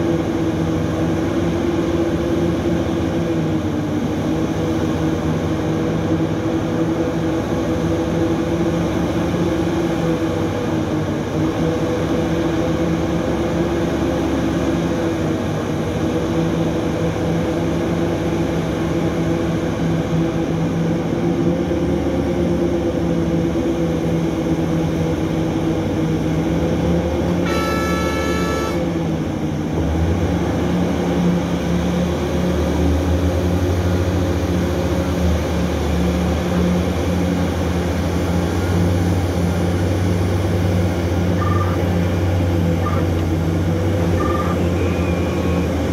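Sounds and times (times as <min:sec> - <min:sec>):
excavator engine humming: 0:00.0 - 0:45.9
horn blast: 0:27.4 - 0:29.0.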